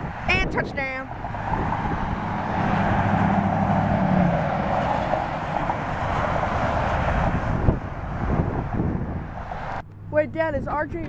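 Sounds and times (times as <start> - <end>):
jet engines rumbling: 0.0 - 11.0.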